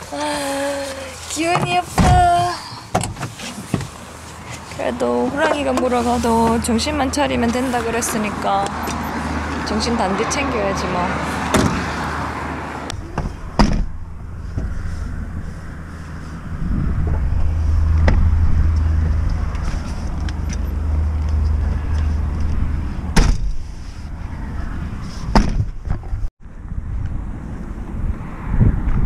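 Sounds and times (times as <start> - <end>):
low rumble: 12.9 - 25.1.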